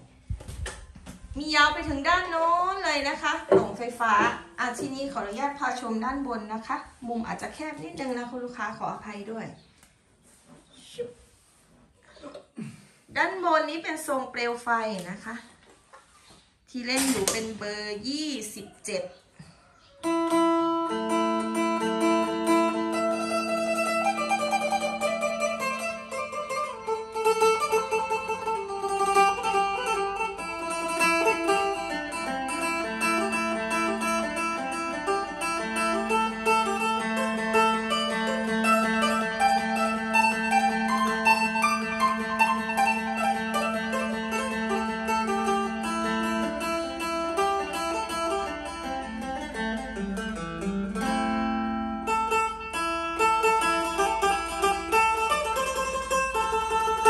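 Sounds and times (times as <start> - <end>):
plucked lute melody: 1.8 - 6.5, 20.0 - 57.0.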